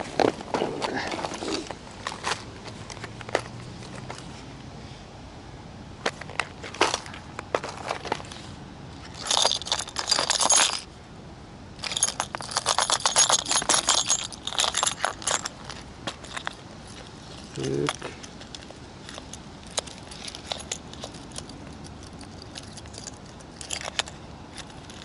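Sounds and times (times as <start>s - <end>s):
metal lures jingling: 9.0s - 10.9s, 11.8s - 25.0s.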